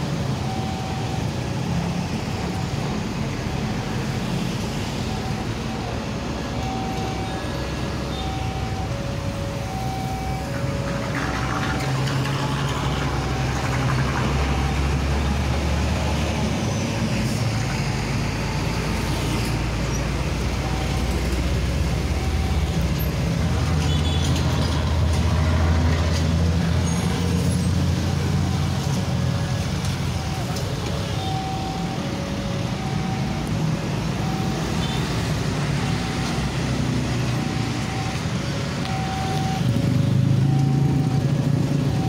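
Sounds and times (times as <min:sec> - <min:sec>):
diesel engine rumble: 0:00.0 - 0:42.0
heavy road traffic: 0:00.0 - 0:42.0.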